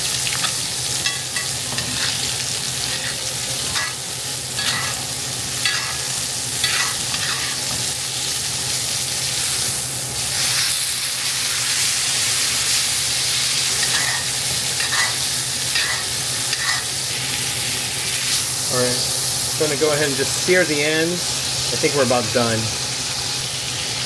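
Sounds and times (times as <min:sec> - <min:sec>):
steak sizzling in a pan: 0:00.0 - 0:24.0
metal spoon scraping pan: 0:06.6 - 0:07.8, 0:14.8 - 0:15.2, 0:15.8 - 0:16.8.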